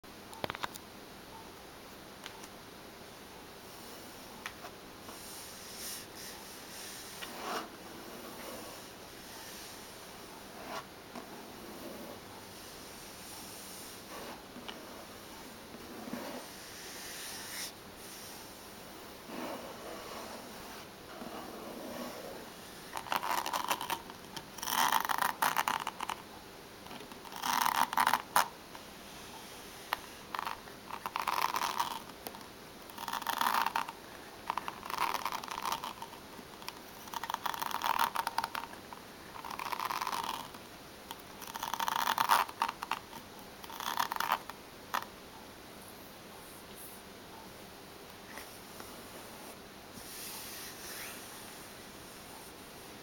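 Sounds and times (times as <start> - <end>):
fingernails scratching a book: 5.6 - 9.8, 10.5 - 12.2, 15.8 - 18.4, 19.2 - 26.2.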